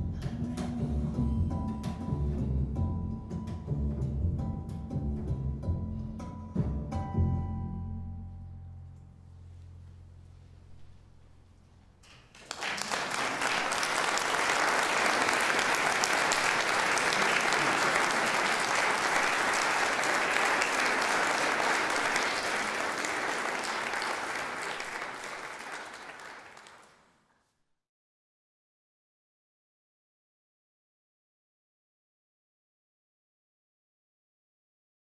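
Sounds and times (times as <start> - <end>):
audience applause: 12.3 - 27.0.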